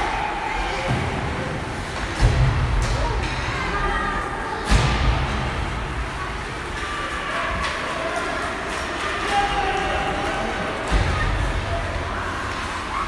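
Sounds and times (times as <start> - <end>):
people calling out in an arena: 0.0 - 1.4, 6.8 - 13.0.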